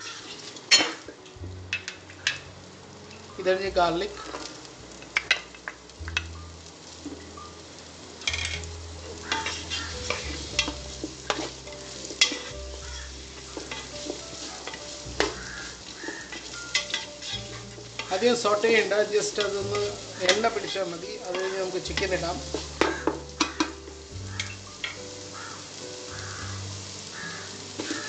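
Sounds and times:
onions sizzling in oil: 0.0s - 28.0s
wooden spoon scraping pot: 9.3s - 23.2s.

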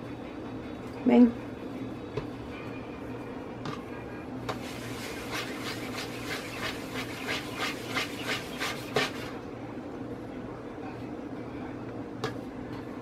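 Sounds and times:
dough rubbing on countertop: 4.5s - 9.4s.

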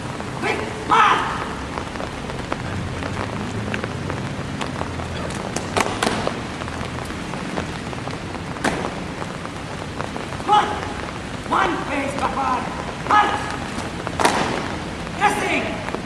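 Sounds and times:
rain falling: 0.0s - 16.0s
raindrop hits: 0.0s - 16.0s.

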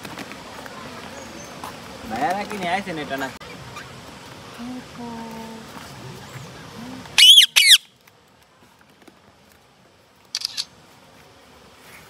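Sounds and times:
quiet high bird chatter: 0.7s - 2.2s, 3.4s - 8.0s, 10.3s - 10.7s
parakeets squawking: 7.2s - 7.8s.

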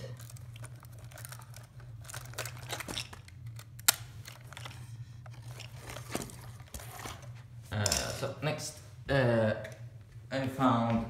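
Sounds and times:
camera handling rustles and clicks: 0.2s - 7.3s.

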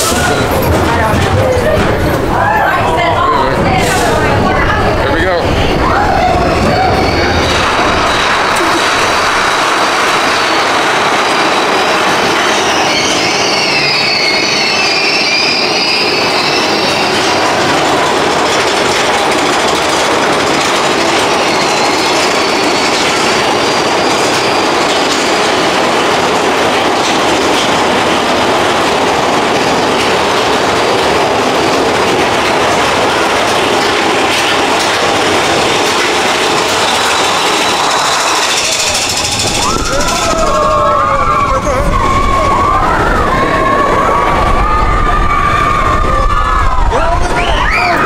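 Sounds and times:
roller coaster cars rattling: 0.0s - 48.0s
high wheel squeal: 5.6s - 17.9s, 21.2s - 24.9s, 36.6s - 44.3s.

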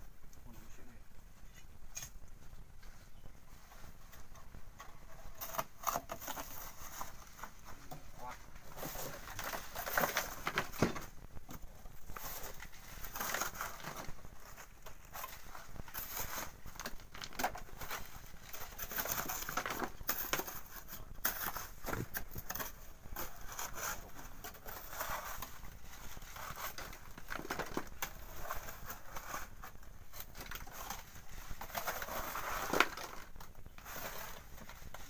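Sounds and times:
gravel rattling through wire sieve: 12.1s - 35.0s.

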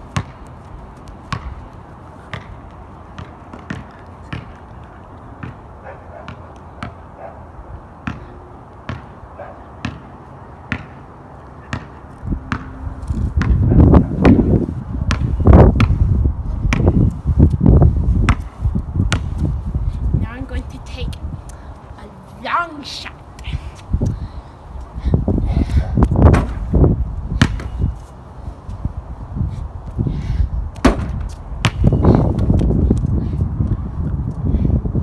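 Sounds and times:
basketball bouncing on pavement: 0.0s - 7.3s, 8.0s - 11.0s, 11.6s - 24.1s, 26.0s - 28.1s, 30.7s - 33.7s.

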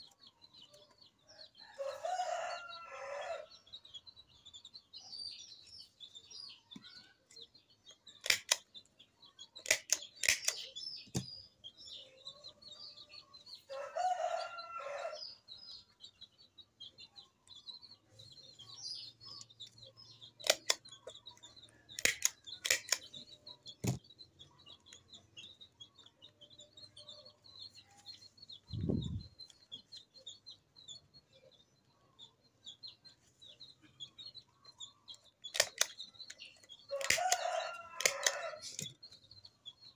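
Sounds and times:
sharp clicks: 8.1s - 8.9s, 9.6s - 11.3s, 20.4s - 24.0s, 35.1s - 39.0s.

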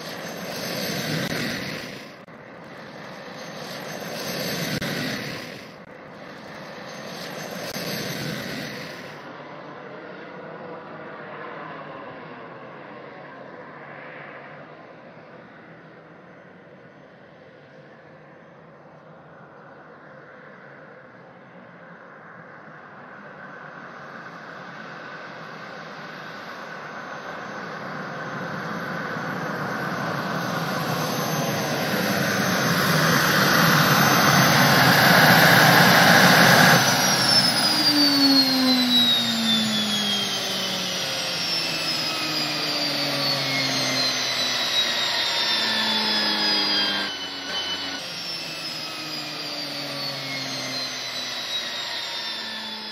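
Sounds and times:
gas turbine whining: 0.0s - 9.4s, 23.8s - 52.9s.

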